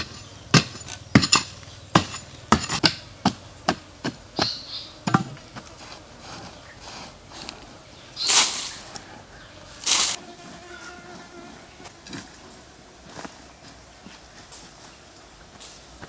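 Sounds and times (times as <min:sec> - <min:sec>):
digging pole striking stony earth: 0:00.0 - 0:05.6
soil scraping: 0:00.0 - 0:16.0.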